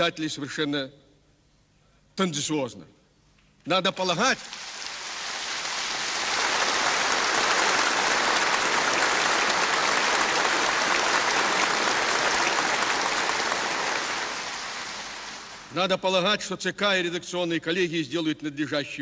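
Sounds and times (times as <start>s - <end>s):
audience applauding: 4.4s - 15.8s.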